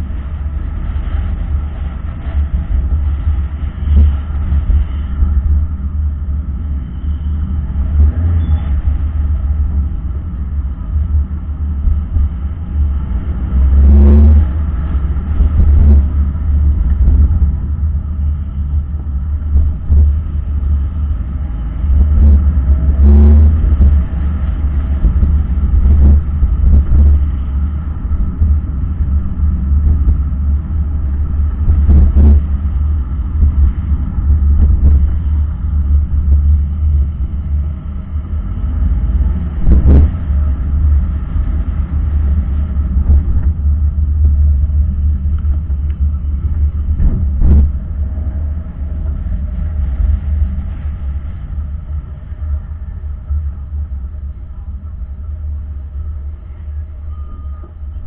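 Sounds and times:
car rumbling in traffic: 0.0s - 58.0s.

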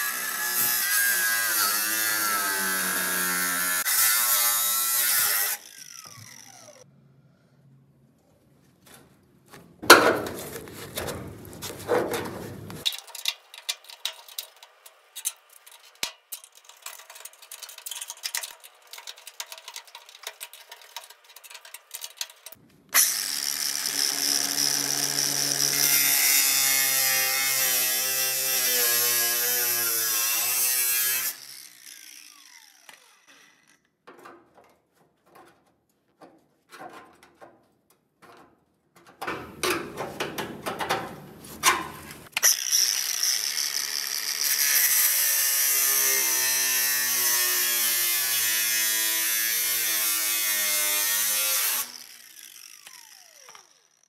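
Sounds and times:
angle grinder cutting steel: 0.0s - 6.9s, 13.8s - 33.9s, 41.7s - 54.0s.

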